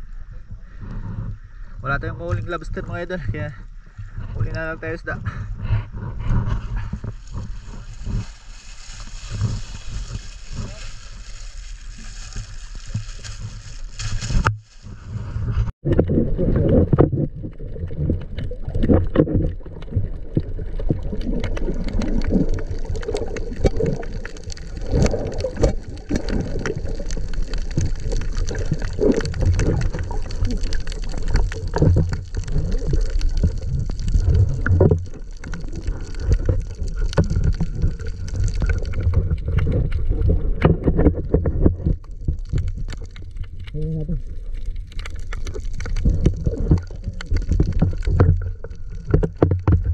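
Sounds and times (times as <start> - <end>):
underwater rumble of water: 0.0 - 49.9
small underwater clicks: 15.9 - 49.9.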